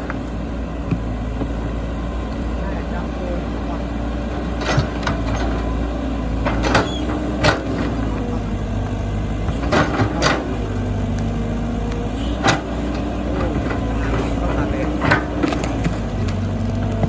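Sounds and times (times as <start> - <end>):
excavator diesel engine running: 0.0 - 17.0
excavator bucket knocks and clanks: 4.5 - 8.3, 9.4 - 10.7, 12.4 - 17.0.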